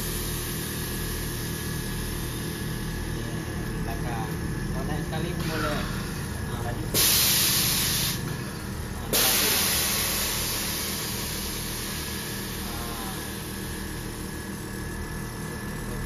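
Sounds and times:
air valves hissing: 0.0 - 16.0
steady low hum: 0.0 - 16.0.

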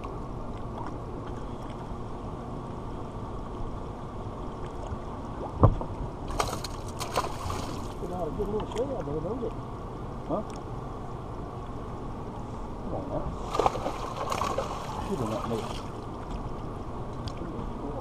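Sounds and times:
wind: 0.0 - 18.0
lake water washing: 4.1 - 9.6, 13.0 - 16.6
thump on boat: 5.6 - 7.5
fish splashing at surface: 6.3 - 8.0, 13.4 - 15.9.

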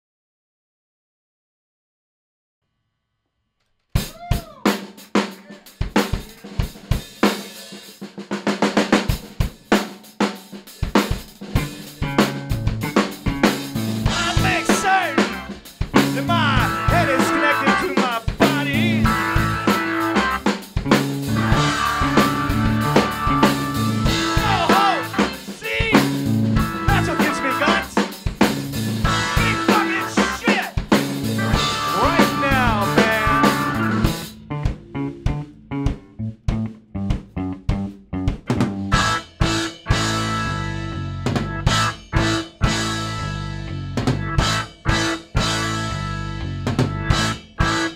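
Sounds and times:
drum kit: 3.9 - 47.9
electric keyboard sustained chords: 11.6 - 25.5, 26.2 - 27.9, 28.6 - 30.4, 31.0 - 37.2, 38.9 - 47.9
electric bass walking line: 11.6 - 47.9.

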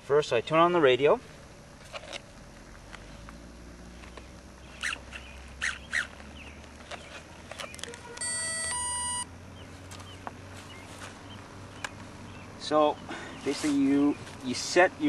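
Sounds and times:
bird chirps: 4.1 - 14.3
two-tone electronic beep: 8.2 - 9.3.

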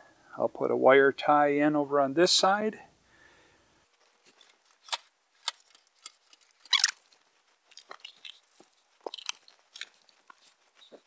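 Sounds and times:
plastic cable ties rustling: 3.9 - 11.0.

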